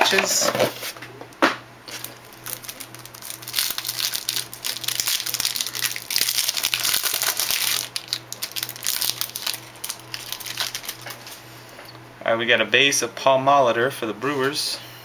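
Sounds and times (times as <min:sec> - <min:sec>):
plastic wrapper crinkling: 0:01.9 - 0:11.4.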